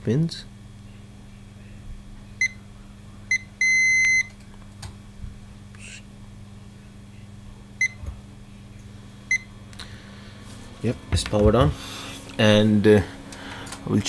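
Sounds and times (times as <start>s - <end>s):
steady low hum: 0.0s - 14.0s
multimeter beeping: 3.3s - 4.4s.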